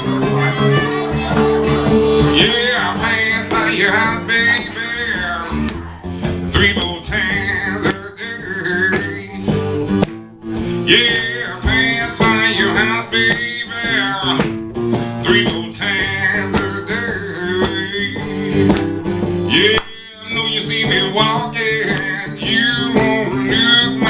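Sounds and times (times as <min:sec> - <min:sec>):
harmonica playing: 0:00.0 - 0:03.8
acoustic guitar strummed: 0:00.0 - 0:24.0
man singing: 0:00.0 - 0:24.0.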